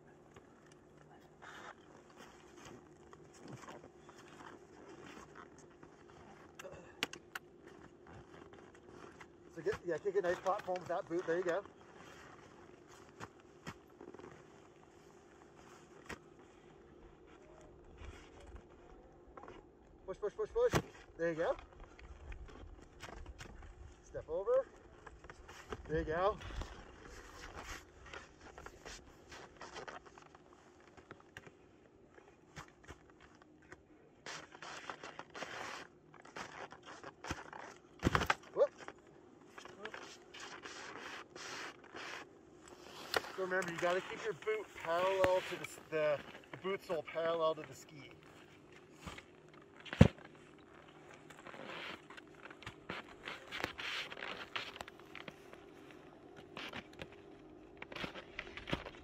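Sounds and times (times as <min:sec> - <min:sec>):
ski boots crunching in snow: 0:34.2 - 0:37.9, 0:38.6 - 0:56.8
ski binding click: 0:39.6 - 0:47.0.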